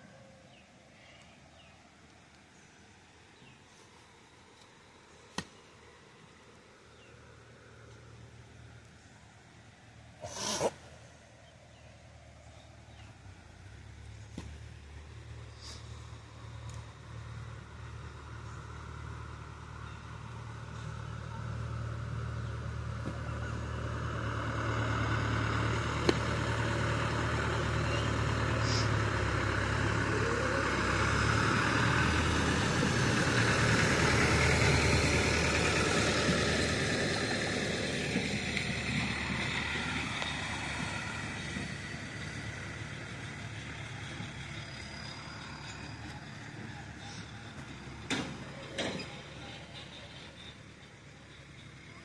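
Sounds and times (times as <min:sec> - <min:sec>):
vehicle engine passing: 0:11.7 - 0:52.0.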